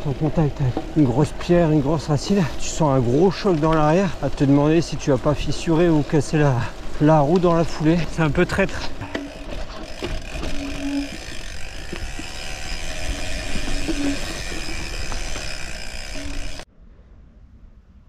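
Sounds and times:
bike tyre noise on stones: 0:00.0 - 0:16.7
bike knocks and rattles: 0:08.5 - 0:16.6.

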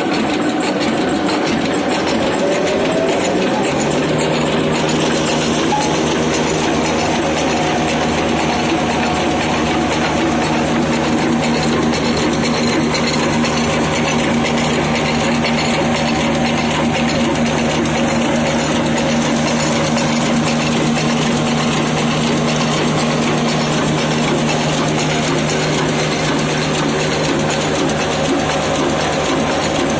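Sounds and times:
stationary diesel engine running: 0:00.0 - 0:29.9.

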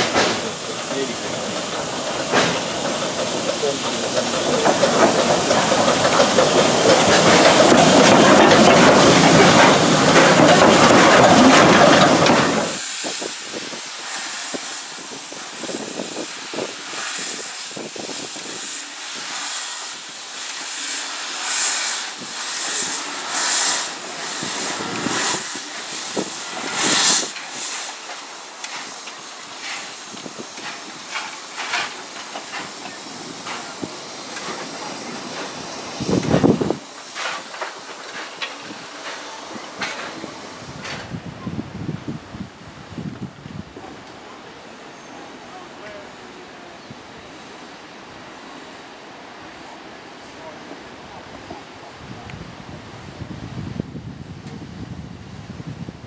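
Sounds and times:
short sharp steam hisses: 0:00.0 - 0:41.3
steam locomotive hissing steam: 0:00.0 - 0:55.8.

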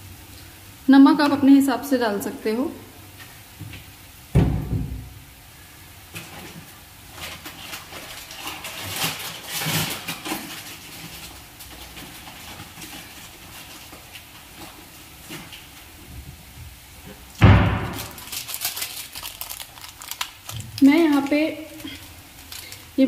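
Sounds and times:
low thump: 0:04.4 - 0:05.1, 0:17.4 - 0:17.9
rustling: 0:06.1 - 0:16.1, 0:17.0 - 0:23.0.

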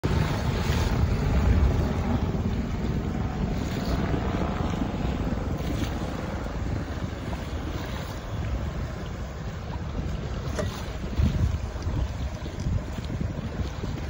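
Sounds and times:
choppy water: 0:00.0 - 0:14.0
wind buffeting microphone: 0:00.0 - 0:14.0.

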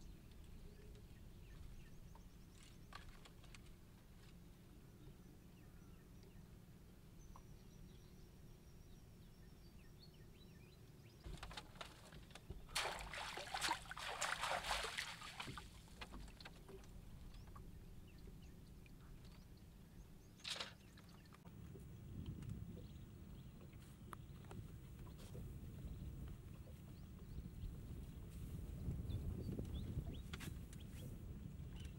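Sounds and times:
water splashing and sloshing: 0:11.2 - 0:17.7
faint low rumble: 0:21.0 - 0:31.9.

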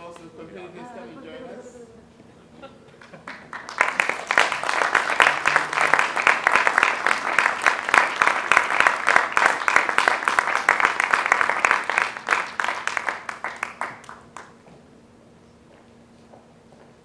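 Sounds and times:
audience applauding: 0:03.0 - 0:14.6.

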